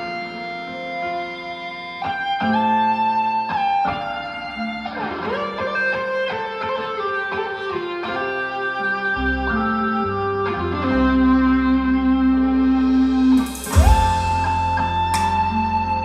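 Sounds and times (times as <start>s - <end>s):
plucked guitar music: 0.0s - 16.0s.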